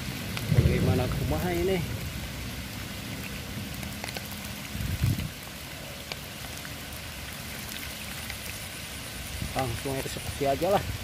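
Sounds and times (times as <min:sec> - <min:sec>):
steady rain falling: 0:00.0 - 0:11.0
low thump: 0:00.5 - 0:01.3.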